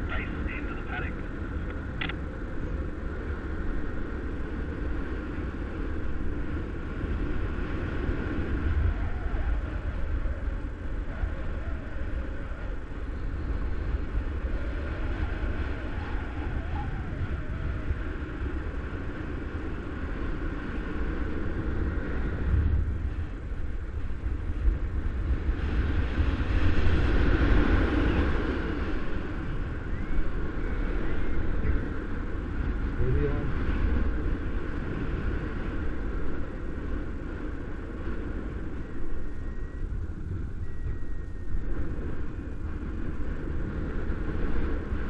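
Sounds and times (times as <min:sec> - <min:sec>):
wind buffeting microphone: 0:00.0 - 0:45.0.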